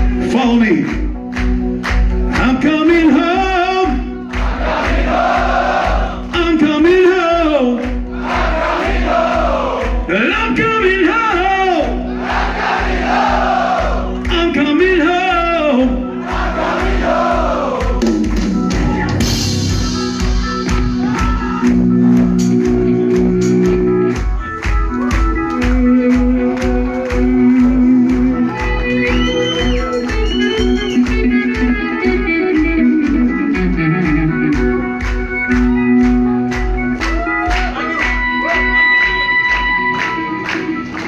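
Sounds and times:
live metal band playing: 14.2 - 40.8.

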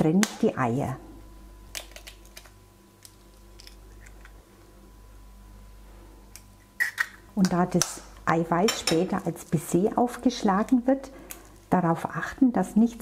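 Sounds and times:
eggshell cracking: 1.8 - 4.4.

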